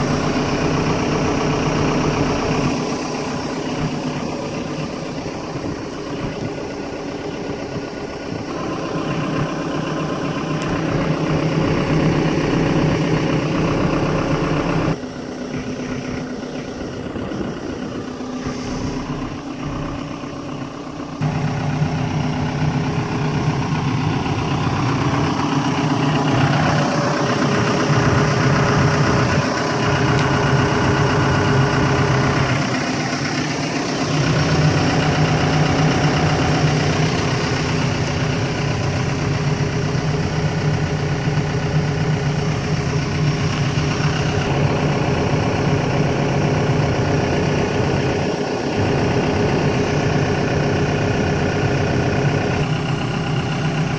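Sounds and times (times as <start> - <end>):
excavator diesel engine idling: 0.0 - 53.9.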